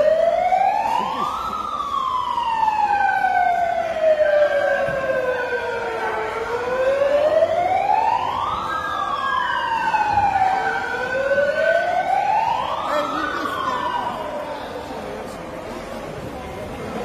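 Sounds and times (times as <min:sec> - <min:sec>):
emergency vehicle siren wailing: 0:00.0 - 0:15.3.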